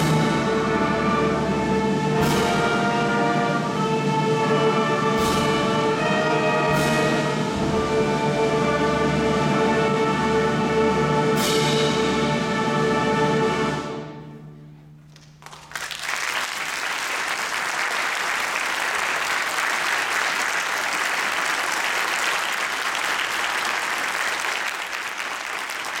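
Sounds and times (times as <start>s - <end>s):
audience applause: 15.2s - 26.0s.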